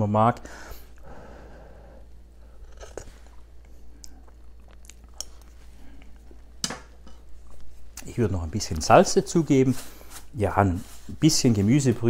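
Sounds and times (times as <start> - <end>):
man's lips smacking and clicking: 2.7 - 6.6.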